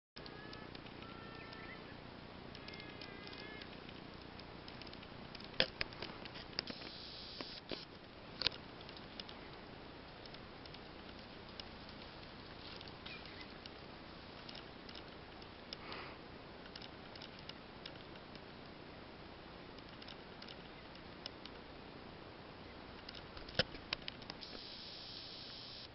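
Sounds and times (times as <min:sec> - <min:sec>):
sharp clicks and crackles: 0:00.2 - 0:01.7, 0:02.5 - 0:16.0, 0:16.6 - 0:18.8, 0:19.7 - 0:21.6, 0:23.0 - 0:25.9.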